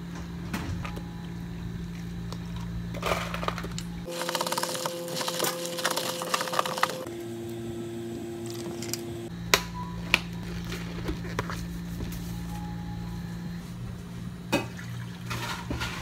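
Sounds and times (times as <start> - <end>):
low hum: 0.0 - 16.0
ice and soda crackling: 4.1 - 7.1.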